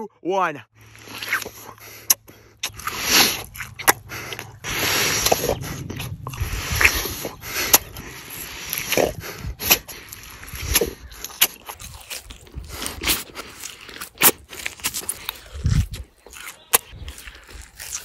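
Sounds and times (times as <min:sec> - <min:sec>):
breaths: 0:00.7 - 0:11.4
biting and chewing meat: 0:00.7 - 0:18.0.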